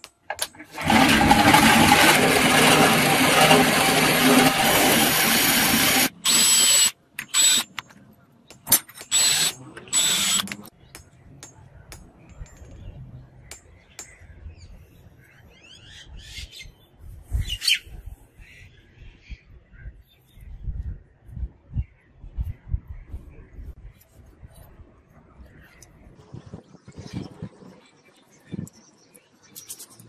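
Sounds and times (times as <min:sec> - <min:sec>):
drill boring through steel: 0:00.7 - 0:07.6, 0:09.0 - 0:10.6.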